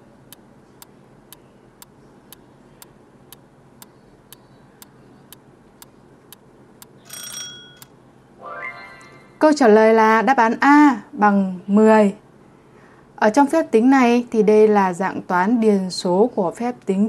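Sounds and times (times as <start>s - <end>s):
short ringing tone: 7.0s - 7.9s.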